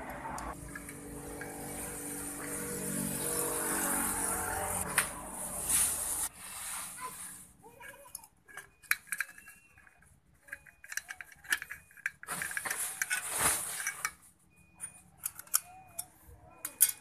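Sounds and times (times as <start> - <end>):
metal parts clicking and clinking: 0.4 - 2.2, 7.7 - 17.0.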